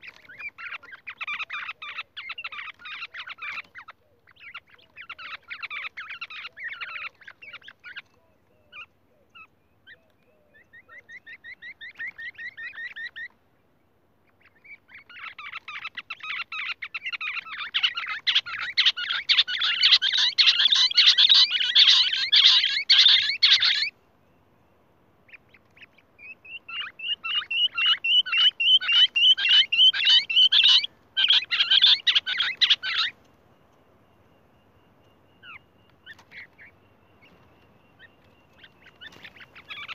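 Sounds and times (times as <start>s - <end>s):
bird calling sharp repeated notes: 14.4s - 23.9s, 25.3s - 33.2s.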